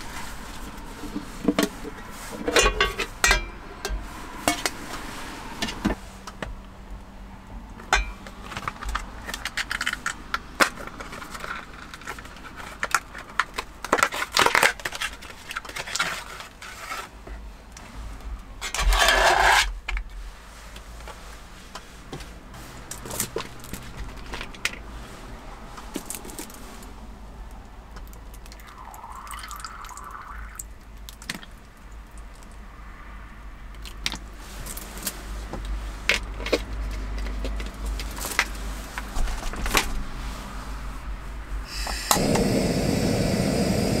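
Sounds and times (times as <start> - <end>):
metal tin clinking and scraping: 1.0 - 4.8, 7.9 - 8.3, 18.6 - 19.8.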